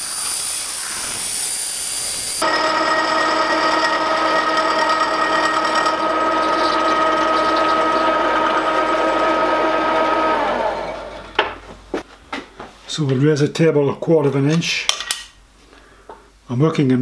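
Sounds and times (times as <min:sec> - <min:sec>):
milling machine whine: 0:02.2 - 0:11.5
end mill cutting metal: 0:02.4 - 0:11.4.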